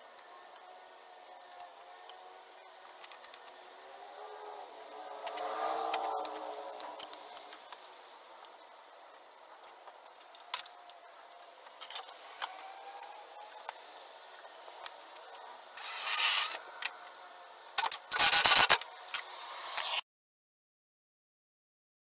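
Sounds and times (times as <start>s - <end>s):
cordless drill boring into wood: 15.8s - 16.6s, 17.8s - 18.8s.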